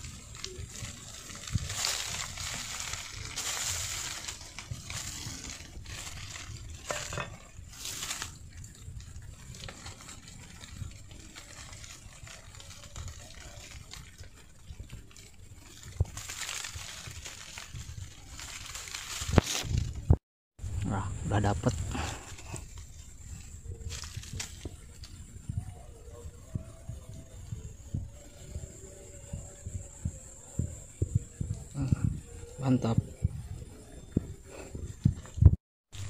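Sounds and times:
scraping and crunching of dry soil: 0:00.0 - 0:36.0.

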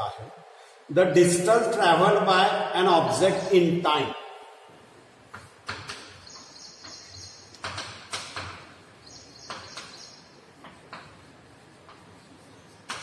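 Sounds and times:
chalk scratching on blackboard: 0:04.9 - 0:13.0
chalk tapping on blackboard: 0:05.2 - 0:13.0.

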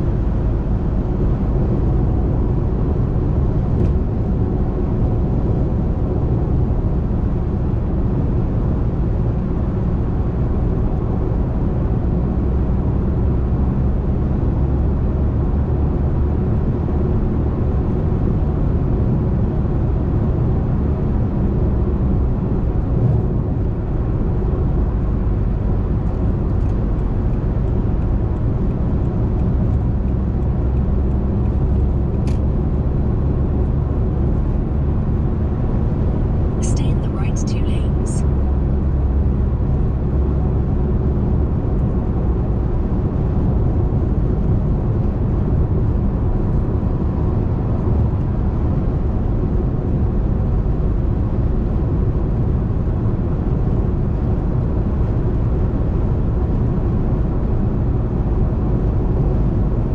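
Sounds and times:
car cabin road rumble: 0:21.0 - 0:38.1.

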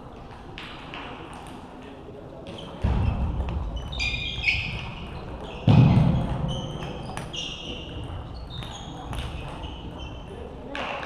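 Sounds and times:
shoes squeaking on floor: 0:02.4 - 0:10.5
heavy thud: 0:05.7 - 0:06.5.

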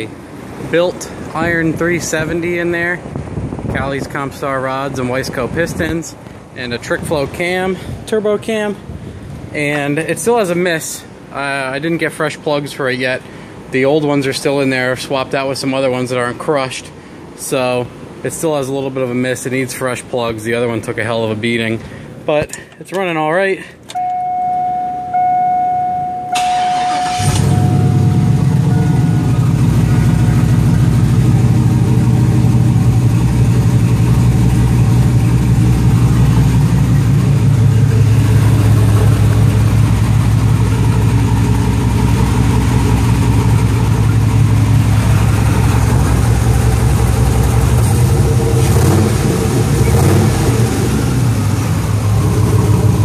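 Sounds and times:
truck engine cranking and idling: 0:23.6 - 0:53.0
steady tone: 0:24.0 - 0:42.0.

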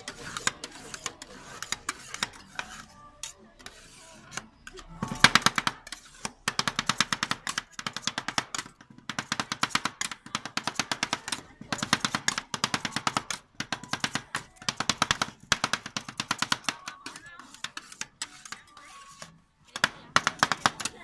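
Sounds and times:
metal spatulas clacking on metal plate: 0:00.0 - 0:21.0.

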